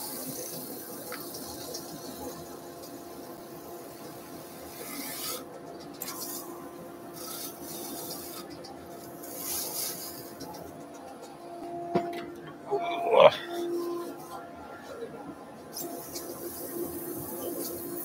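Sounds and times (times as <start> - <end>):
lathe faint hum: 6.0 - 18.0.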